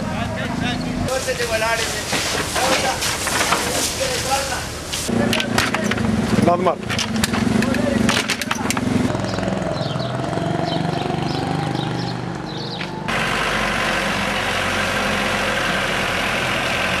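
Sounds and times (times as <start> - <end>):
loud rushing hiss: 1.1 - 5.2
heavy truck engine running: 12.7 - 17.0.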